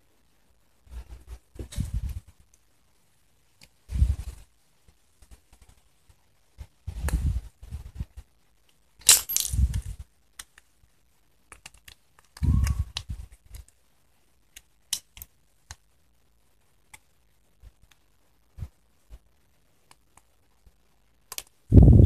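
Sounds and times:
small metal parts clicking: 9.0s - 10.6s.

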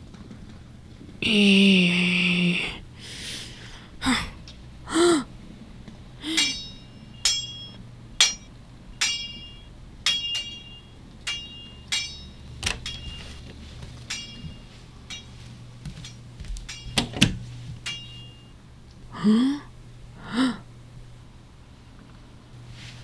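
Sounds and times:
metallic sword clashes: 6.2s - 18.5s.

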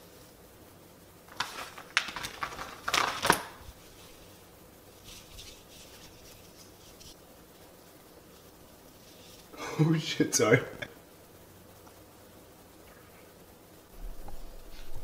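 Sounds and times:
fabric rustling and crinkling: 1.3s - 4.4s.

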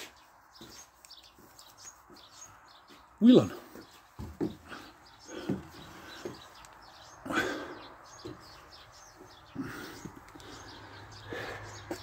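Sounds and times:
knocks and scuffs from handling: 0.0s - 3.1s, 3.8s - 6.6s
small birds chirping: 0.0s - 12.0s.

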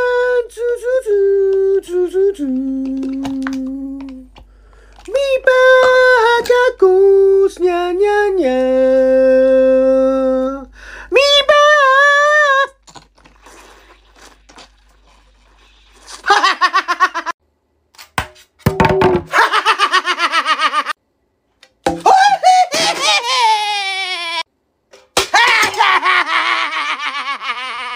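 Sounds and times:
man singing wordless held notes: 5.1s - 12.5s.

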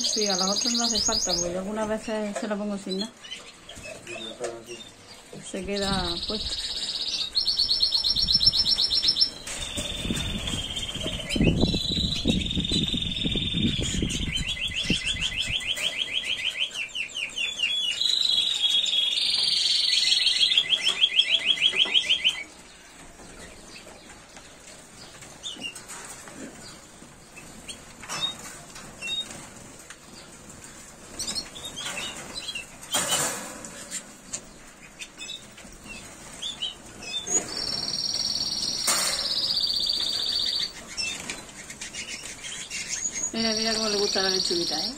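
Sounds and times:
bird chirps: 0.0s - 1.6s, 2.8s - 24.1s, 33.8s - 44.9s
canary singing trills: 0.0s - 44.9s.

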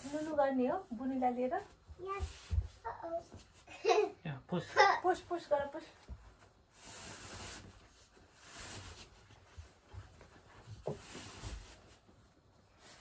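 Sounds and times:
fabric rustling: 4.8s - 13.0s.

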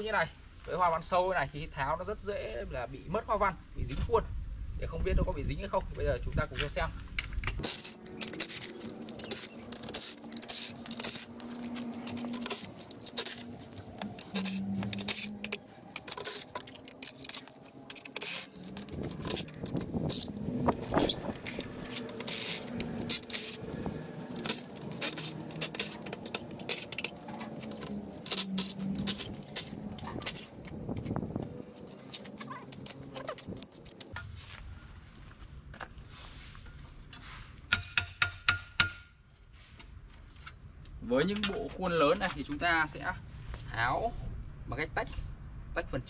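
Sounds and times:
cordless drill running: 18.0s - 26.9s.

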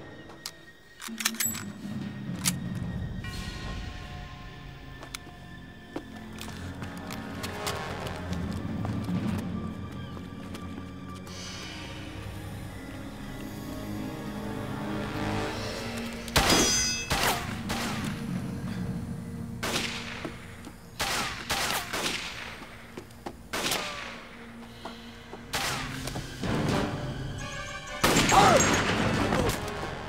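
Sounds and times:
background music score: 0.0s - 30.0s.

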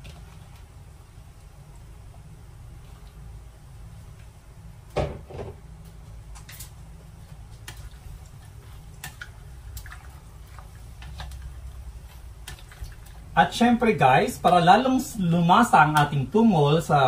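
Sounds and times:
spatula tossing food in bowl: 7.2s - 13.4s.

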